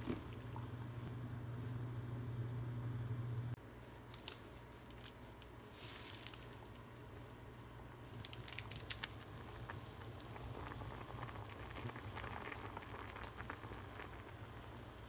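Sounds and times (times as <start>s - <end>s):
water boiling and bubbling: 0.0s - 3.1s, 7.8s - 15.0s
plastic packet crinkling: 4.1s - 7.0s, 8.2s - 9.4s.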